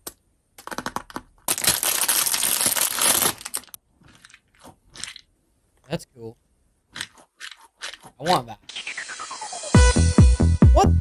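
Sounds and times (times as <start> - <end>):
plastic packaging crinkling: 0.6 - 4.4.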